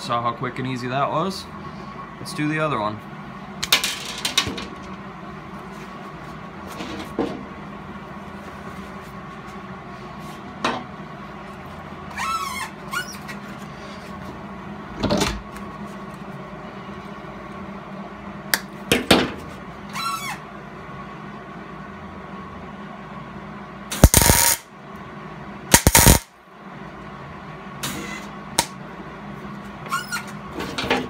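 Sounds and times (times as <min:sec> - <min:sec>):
steady shop hum: 0:00.0 - 0:31.0
brief squeak: 0:29.9 - 0:30.3.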